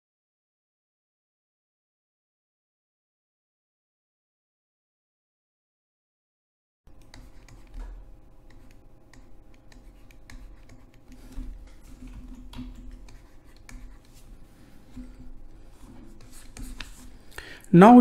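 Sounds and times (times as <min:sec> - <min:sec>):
stylus tapping on tablet: 0:06.9 - 0:17.4
low steady hum: 0:06.9 - 0:18.0.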